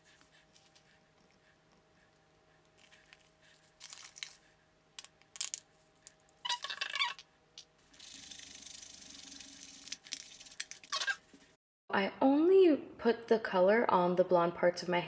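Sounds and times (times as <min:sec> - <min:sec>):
crinkly plastic squeak: 0:06.4 - 0:07.2, 0:10.8 - 0:11.2.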